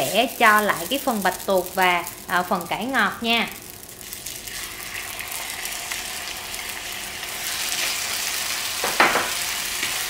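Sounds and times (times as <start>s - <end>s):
food sizzling in oil: 0.0s - 10.0s.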